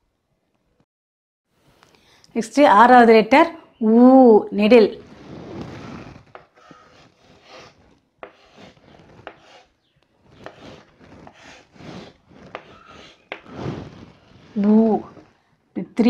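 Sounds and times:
chalk scratching on blackboard: 5.1 - 15.3
chalk tapping on board: 6.8 - 9.7, 10.4 - 13.5.

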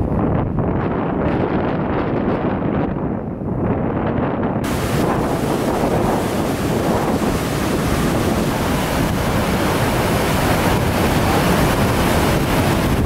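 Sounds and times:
wind buffeting microphone: 0.0 - 13.0
river rushing over rapids: 4.6 - 13.0.

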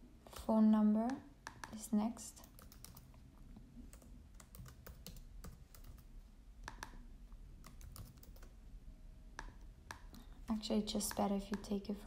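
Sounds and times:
typing on computer keyboard: 2.4 - 3.1, 3.9 - 6.1, 7.6 - 8.6.

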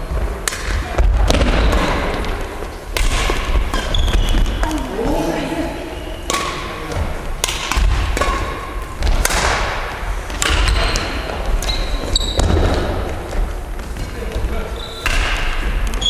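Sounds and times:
rackets striking shuttlecock: 0.4 - 4.9, 6.2 - 13.4, 15.0 - 16.0
shoes squeaking on floor: 3.7 - 4.8, 10.7 - 15.1.

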